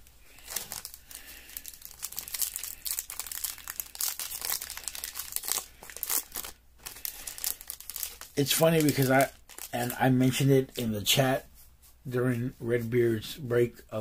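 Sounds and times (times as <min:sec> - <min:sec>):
foil wrapper crinkling and tearing: 0:00.4 - 0:10.6.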